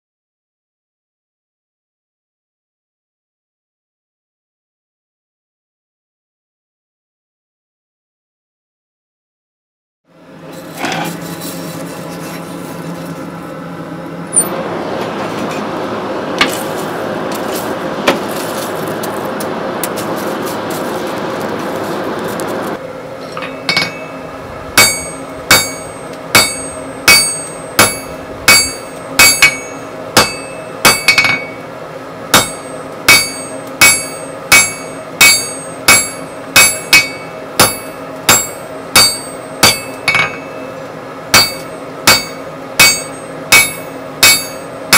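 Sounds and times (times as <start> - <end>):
hammer striking steel on anvil: 23.2 - 24.2, 24.8 - 31.6, 32.3 - 44.9.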